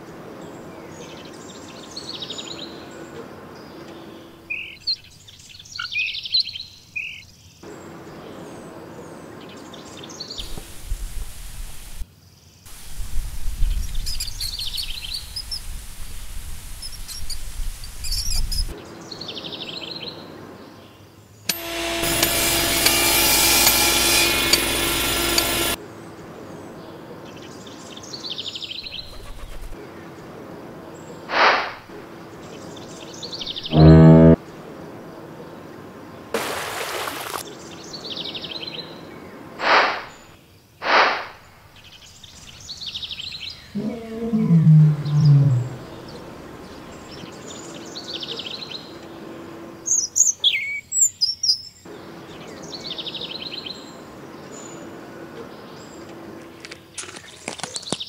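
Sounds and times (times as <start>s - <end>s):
birds chirping: 26.7s - 40.4s, 41.4s - 58.0s
low rumble: 43.8s - 46.8s.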